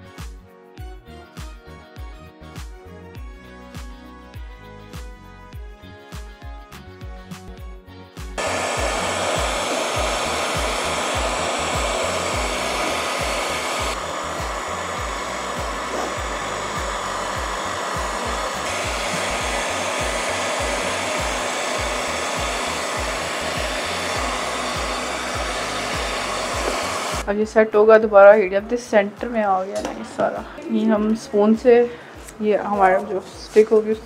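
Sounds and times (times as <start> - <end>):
heat gun blowing hot air: 8.4 - 27.2.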